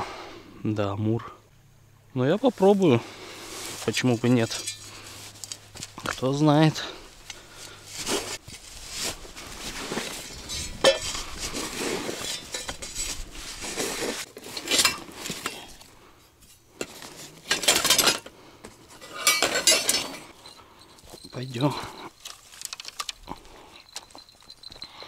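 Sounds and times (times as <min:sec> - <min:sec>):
small hard objects clinking: 0:19.0 - 0:25.0.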